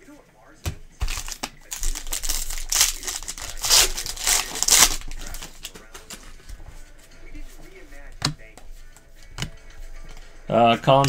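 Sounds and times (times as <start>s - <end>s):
foil wrapper crinkling and tearing: 1.0s - 6.2s.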